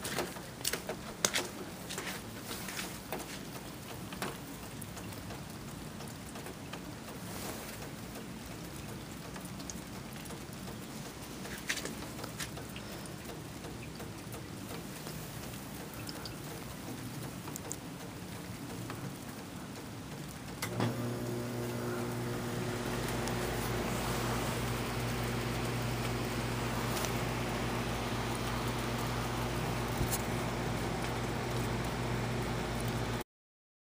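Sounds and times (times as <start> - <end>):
snowfall soft hiss: 0.0 - 5.0, 5.8 - 9.0, 14.6 - 33.2.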